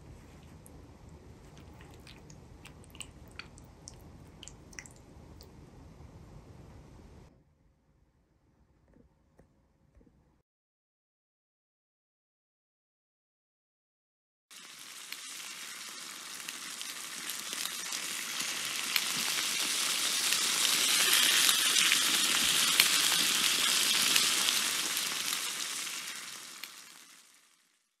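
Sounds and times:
crackling sizzling hiss: 0:14.5 - 0:28.0.

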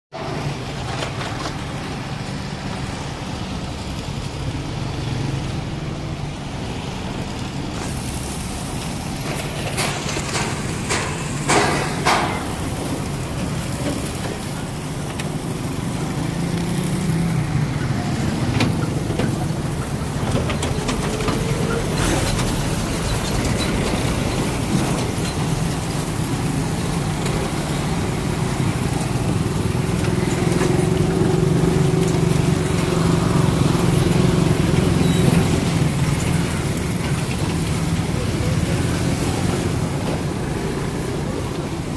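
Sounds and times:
road traffic engines: 0:00.1 - 0:41.9
sharp knocks or rattles: 0:09.3 - 0:12.8.

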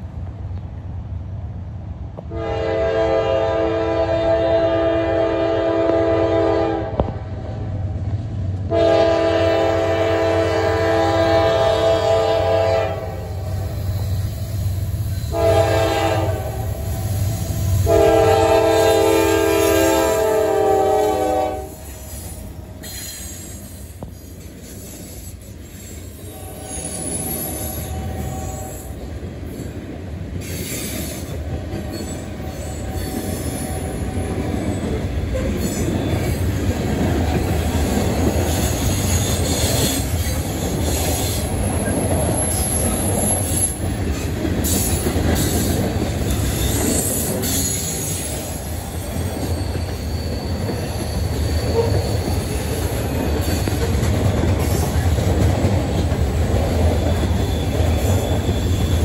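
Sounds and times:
train wheels rumbling on rail: 0:00.0 - 0:59.0
high-pitched wheel squeal: 0:21.7 - 0:29.0, 0:46.4 - 0:53.8, 0:56.9 - 0:59.0.

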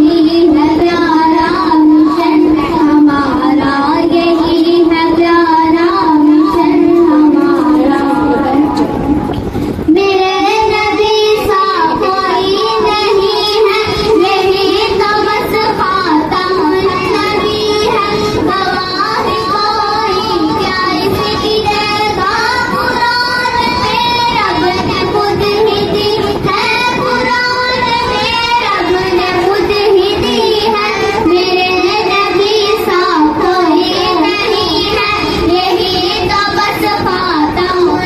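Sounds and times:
girls singing into microphone: 0:00.0 - 0:38.0.

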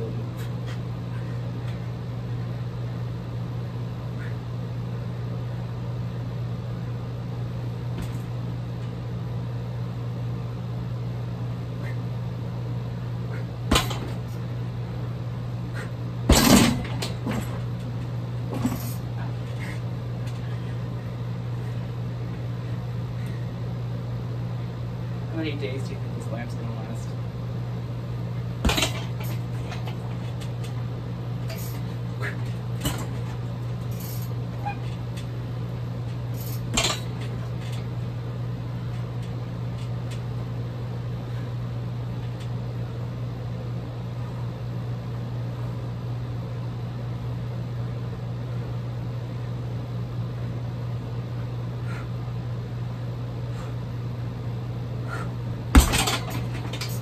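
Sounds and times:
steady low hum: 0:00.0 - 0:57.0
kicks thudding on heavy bag: 0:13.6 - 0:14.3, 0:16.2 - 0:17.6, 0:28.6 - 0:29.6, 0:55.7 - 0:56.8.

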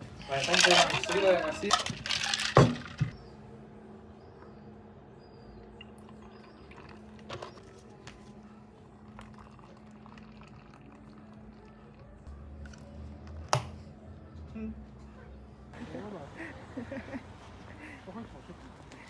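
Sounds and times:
liquid pouring into plastic cup: 0:09.0 - 0:12.0.

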